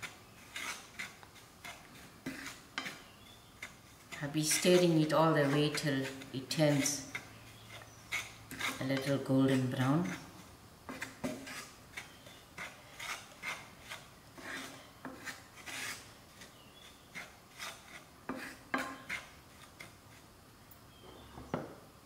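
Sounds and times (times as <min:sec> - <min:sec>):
wooden spoon scraping frying pan: 0:00.0 - 0:20.3.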